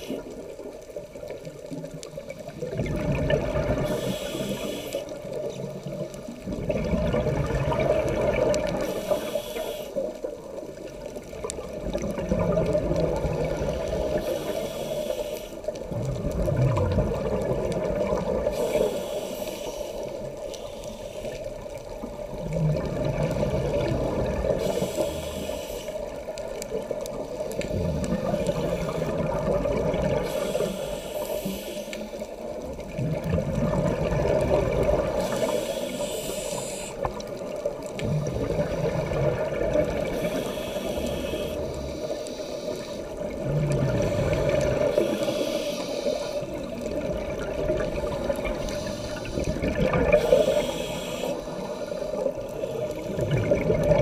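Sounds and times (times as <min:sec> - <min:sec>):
bubbles gurgling underwater: 0:00.0 - 0:09.0, 0:10.3 - 0:14.4, 0:15.7 - 0:18.9, 0:21.7 - 0:25.0, 0:26.0 - 0:30.8, 0:32.3 - 0:35.6, 0:36.6 - 0:42.2, 0:43.1 - 0:45.4, 0:46.4 - 0:54.0
low underwater rumble: 0:15.7 - 0:18.7, 0:43.2 - 0:54.0.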